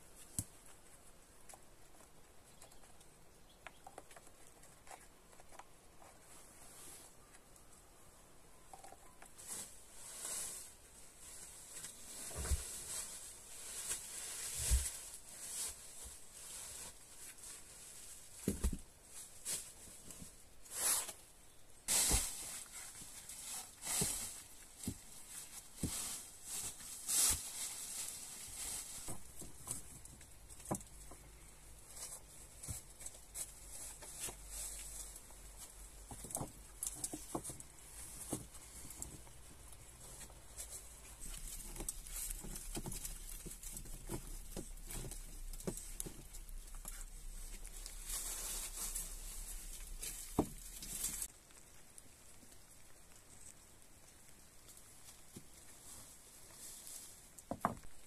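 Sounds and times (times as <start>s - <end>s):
footsteps on dry leaves and stones: 31.8s - 51.8s.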